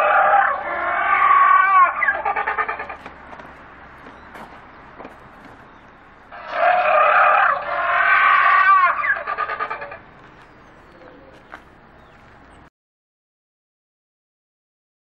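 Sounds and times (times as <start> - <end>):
dinosaur roar: 0.0 - 3.0, 6.3 - 10.0.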